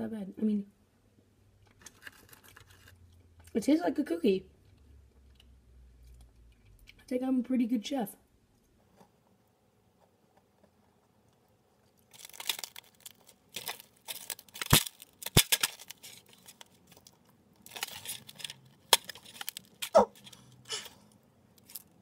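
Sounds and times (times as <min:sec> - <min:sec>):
crinkling and rustling: 0:01.6 - 0:03.6, 0:08.6 - 0:22.0.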